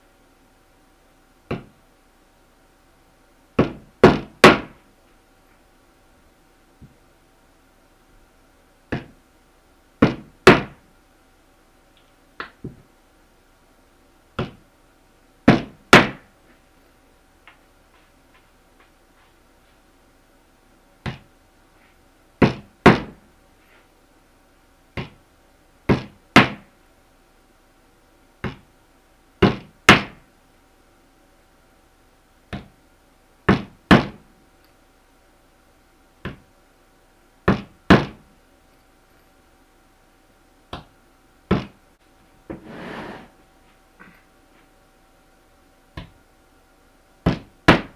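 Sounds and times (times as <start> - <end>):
hammer driving nails into wood: 3.6 - 4.8, 10.0 - 10.8, 22.4 - 23.2, 25.9 - 26.7, 29.4 - 30.2.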